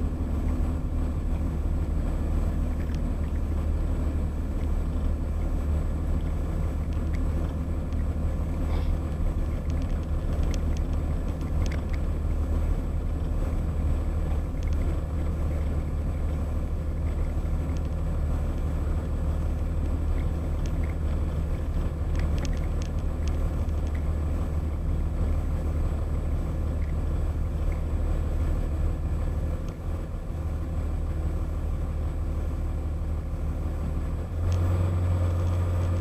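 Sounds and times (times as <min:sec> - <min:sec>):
car engine and road noise: 0:00.0 - 0:36.0
faint clicks: 0:02.5 - 0:03.6, 0:06.2 - 0:12.1, 0:14.3 - 0:16.4, 0:17.1 - 0:24.1, 0:26.8 - 0:27.0.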